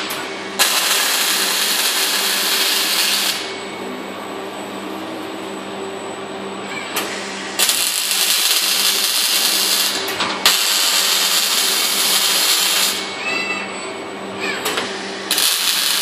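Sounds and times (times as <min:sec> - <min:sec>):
machine hum: 0:00.0 - 0:16.0
welding arc crackling and hissing: 0:00.6 - 0:03.5, 0:07.5 - 0:13.1, 0:15.3 - 0:16.0.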